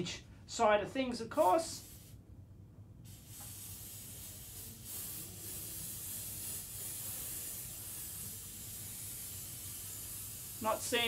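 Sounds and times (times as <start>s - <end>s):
cold spray can hissing: 1.4s - 2.2s, 3.0s - 11.0s.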